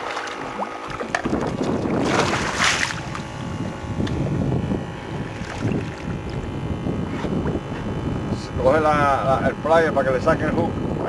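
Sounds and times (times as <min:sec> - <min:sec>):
shark splashing: 0:00.0 - 0:03.3
water sloshing: 0:00.0 - 0:04.2, 0:05.3 - 0:06.5
wind buffeting microphone: 0:00.4 - 0:11.0.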